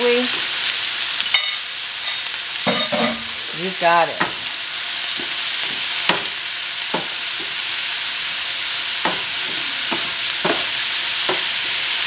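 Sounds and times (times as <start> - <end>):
food sizzling in a wok: 0.0 - 12.0.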